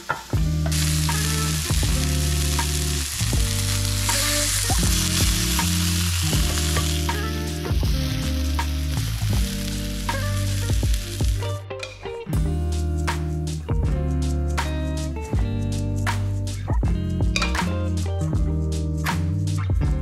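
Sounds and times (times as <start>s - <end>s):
fish sizzling in hot oil: 0.0s - 11.5s
low background music: 0.0s - 20.0s.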